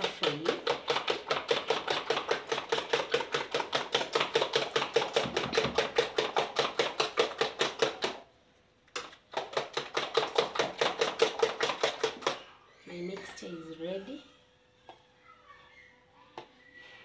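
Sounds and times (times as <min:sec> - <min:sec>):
utensil clacking against plastic bowl: 0:00.0 - 0:08.3, 0:08.9 - 0:12.4.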